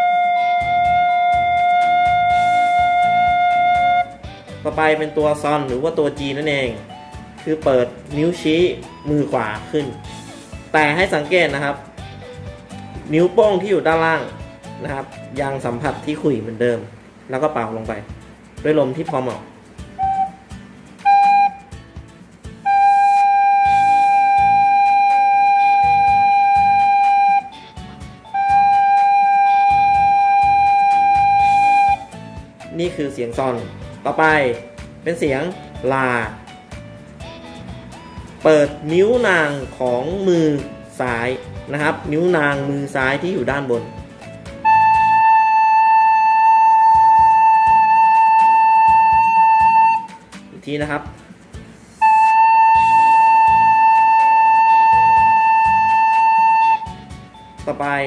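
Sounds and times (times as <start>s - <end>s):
recorder playing a note: 0.0s - 4.2s, 20.0s - 21.8s, 22.6s - 27.6s, 28.2s - 32.1s, 44.6s - 50.2s, 52.0s - 57.0s.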